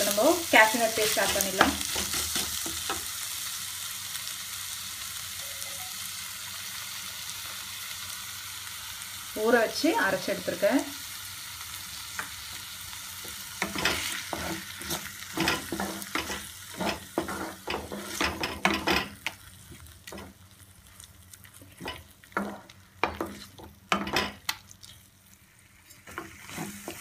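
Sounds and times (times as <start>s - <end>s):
light sizzle: 0.0s - 27.0s
wooden spatula scraping pan: 13.6s - 19.1s, 21.8s - 24.3s, 26.0s - 27.0s.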